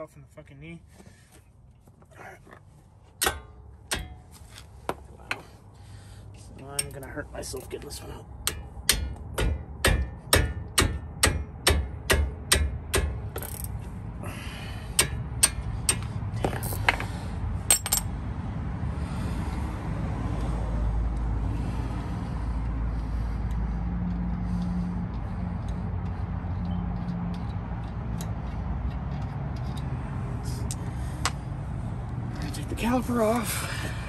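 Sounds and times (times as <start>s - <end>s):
hammer striking a wrench: 3.2s - 5.4s, 6.7s - 7.1s, 8.4s - 13.8s, 14.9s - 17.1s, 17.7s - 18.1s.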